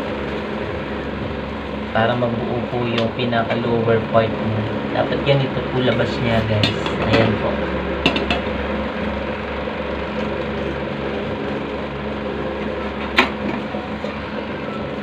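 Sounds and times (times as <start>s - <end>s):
small motor humming: 3.9s - 15.0s.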